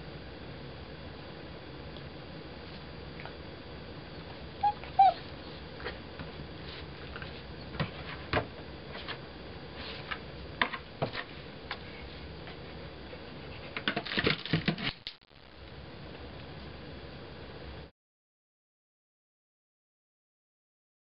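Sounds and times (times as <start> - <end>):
high squeak: 4.6 - 5.2.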